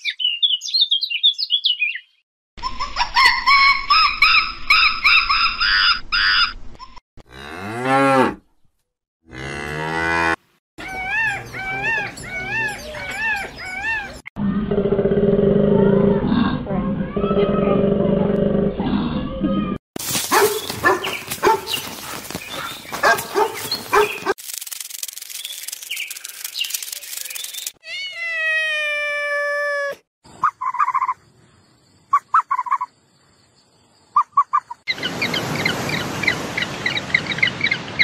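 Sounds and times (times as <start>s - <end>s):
long falling animal call: 10.8s - 16.0s
dog barking: 20.3s - 24.4s
rapid repeated chirping: 22.5s - 27.8s, 30.3s - 33.0s, 34.1s - 35.0s.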